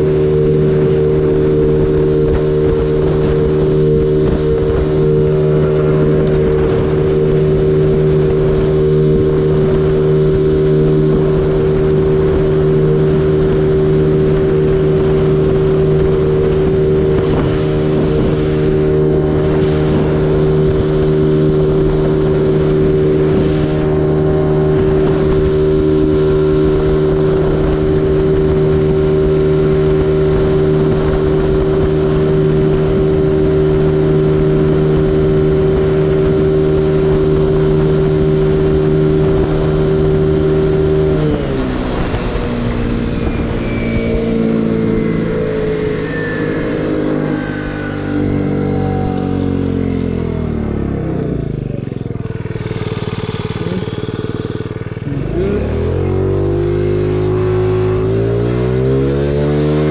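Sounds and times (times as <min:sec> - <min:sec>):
wind rushing past: 0:00.0 - 0:51.0
scooter engine at full throttle: 0:00.0 - 0:59.9.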